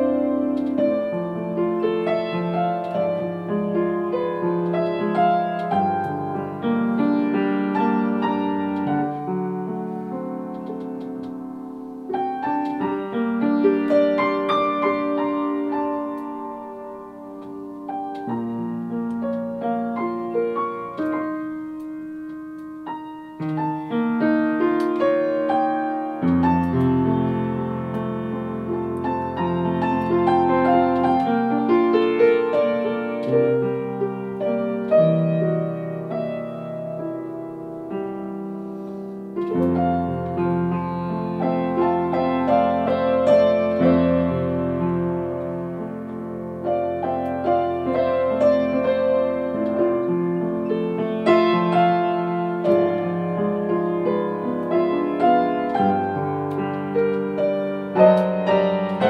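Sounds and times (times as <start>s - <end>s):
piano playing: 0.0s - 59.0s.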